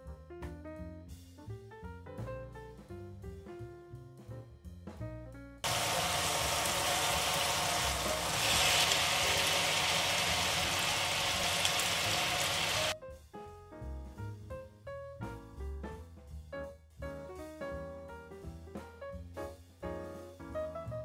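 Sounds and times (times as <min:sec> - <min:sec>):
jazz background music: 0:00.0 - 0:21.0
oil sizzling in a pan: 0:05.6 - 0:13.0
potatoes tipped into hot oil: 0:05.7 - 0:13.0.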